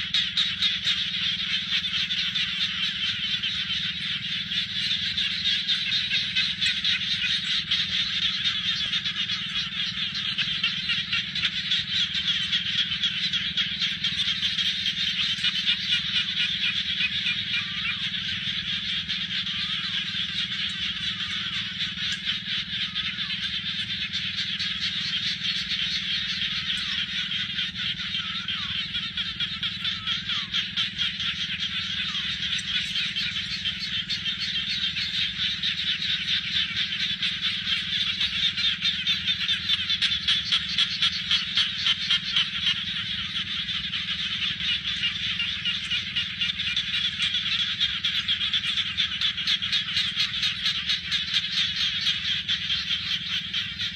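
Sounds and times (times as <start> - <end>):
frogs trilling in chorus: 0.0 - 53.9.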